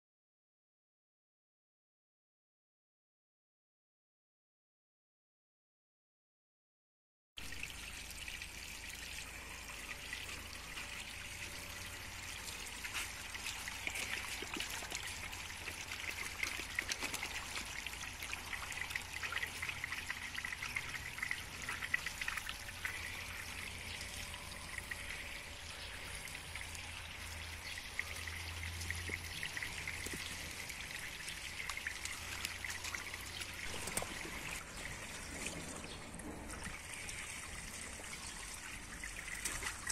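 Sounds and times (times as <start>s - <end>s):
hose water splashing into pool: 7.4s - 39.9s.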